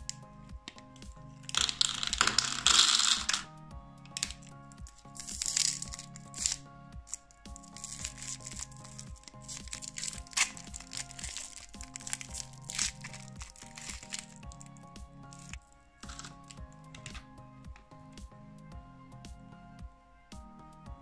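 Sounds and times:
background music: 0.0s - 21.0s
candies rattling into plastic: 1.5s - 3.5s, 4.1s - 14.7s, 15.3s - 17.2s
wrapper crinkling: 1.5s - 3.5s, 4.1s - 17.2s.

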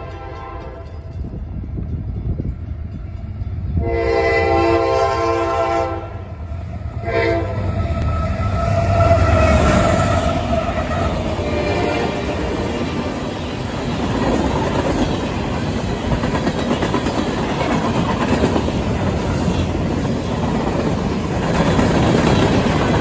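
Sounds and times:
train air horn blasts: 0.0s - 0.9s, 3.8s - 6.3s, 7.0s - 12.5s
locomotive engine and wheels rumbling: 0.0s - 23.0s.

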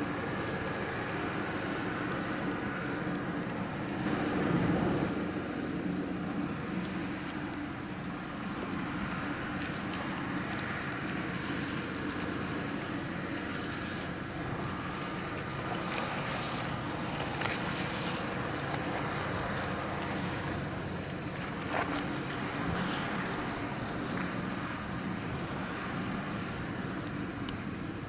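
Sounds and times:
wind on microphone: 0.0s - 6.7s
ship engines droning: 0.0s - 28.0s.

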